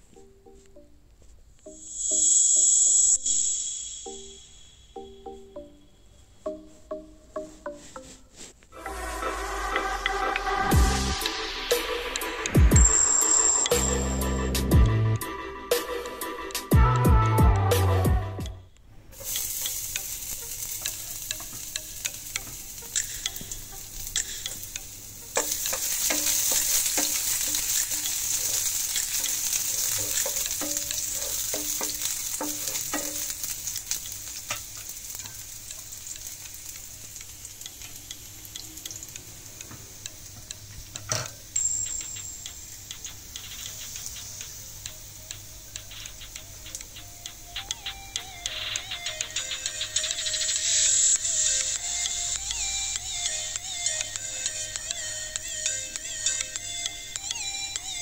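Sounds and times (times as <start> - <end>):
garlic sizzling in hot oil: 19.2 - 58.0
wooden spatula scraping a pan: 25.4 - 34.6.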